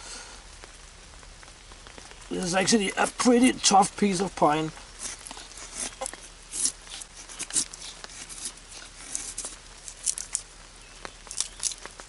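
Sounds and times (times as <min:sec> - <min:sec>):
knife scraping wood: 0:05.0 - 0:10.4.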